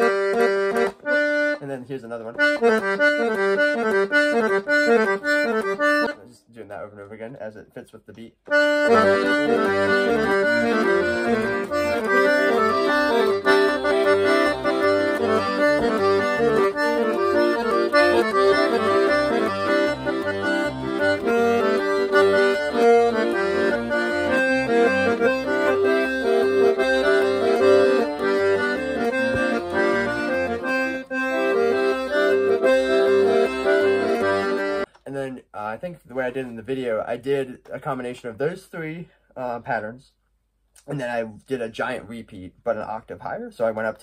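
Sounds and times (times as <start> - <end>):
piano accordion playing: 0.0 - 6.2, 8.5 - 35.0.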